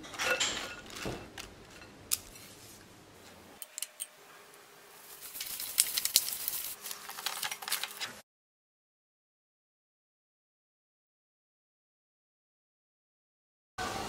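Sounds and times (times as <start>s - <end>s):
cling wrap crackling: 5.0s - 8.2s.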